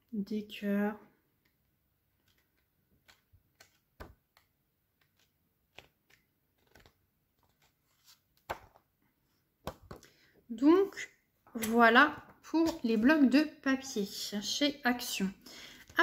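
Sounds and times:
paper sheets rustling: 5.0s - 8.8s.

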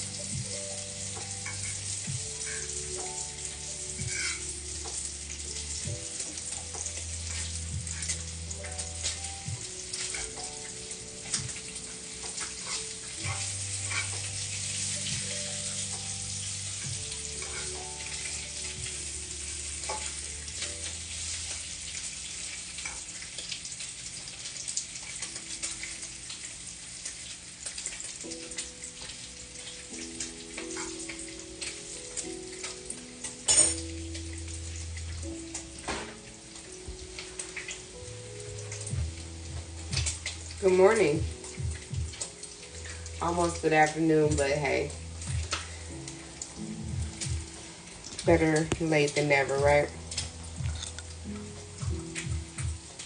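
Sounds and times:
food sizzling in a pan: 0.0s - 53.0s
background music with bass: 38.0s - 42.2s, 44.2s - 48.6s, 49.6s - 53.0s.

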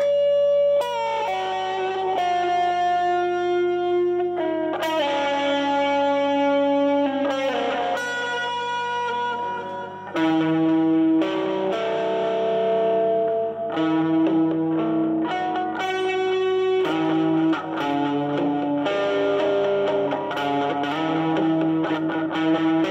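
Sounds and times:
electric guitar blues lead: 0.0s - 22.9s.

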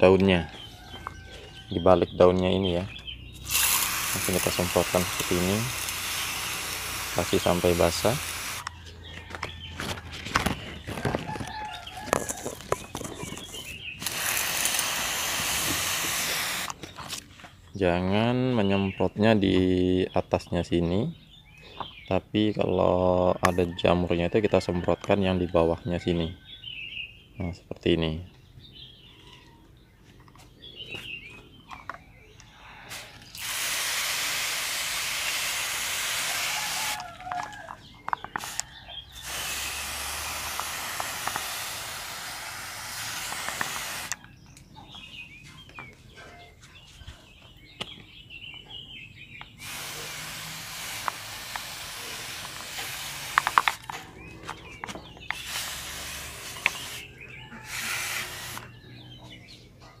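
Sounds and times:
hand sprayer hissing: 3.4s - 8.7s, 13.1s - 16.8s, 32.9s - 37.2s, 38.4s - 44.2s, 49.6s - 54.0s, 55.0s - 58.8s.

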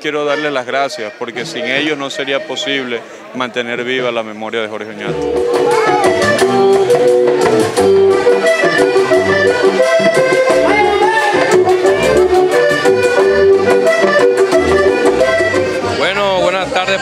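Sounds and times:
button accordion melody: 0.3s - 3.0s, 5.1s - 17.0s
low beat: 5.1s - 17.0s.

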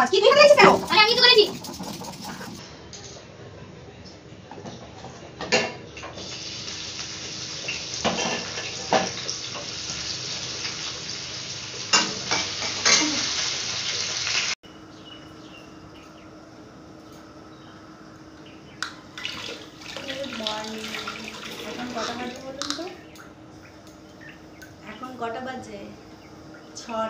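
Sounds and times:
faint low hum: 0.0s - 2.6s.

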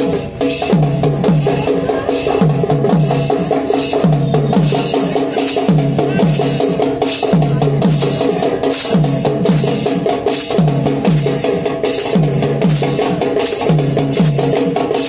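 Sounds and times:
drum-led dance music: 0.0s - 15.0s.

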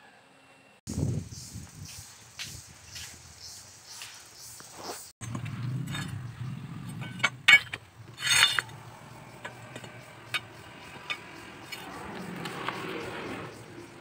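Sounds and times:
steel bars clinking and scraping: 5.2s - 11.9s.

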